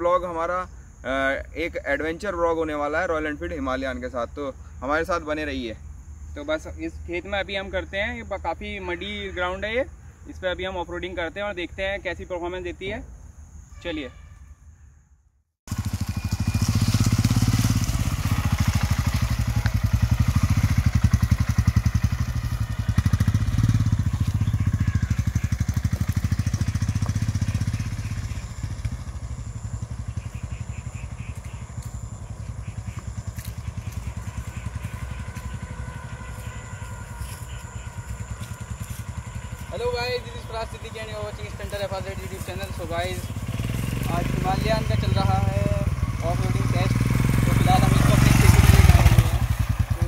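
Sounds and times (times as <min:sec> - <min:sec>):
motorcycle engine running hard: 0:15.7 - 0:50.0.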